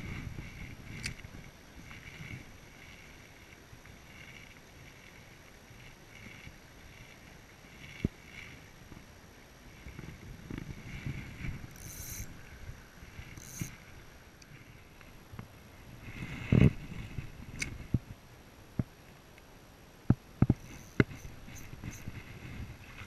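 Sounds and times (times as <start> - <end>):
fishing reel whirring: 0.0 - 9.1, 9.7 - 14.8, 20.5 - 23.0
rustling through brush: 20.5 - 23.0.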